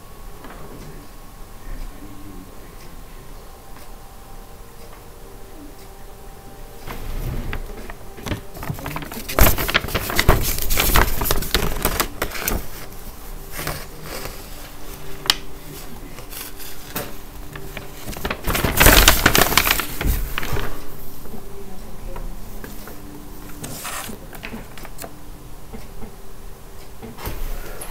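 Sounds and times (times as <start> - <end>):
paper rustling and crackling: 6.8 - 21.2, 22.6 - 25.2.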